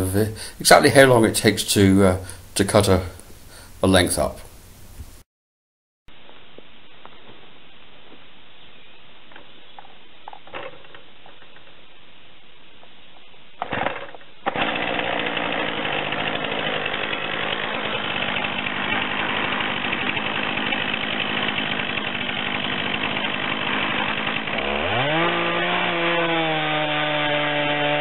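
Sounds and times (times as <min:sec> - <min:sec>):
chainsaw cutting log: 0:13.6 - 0:28.0.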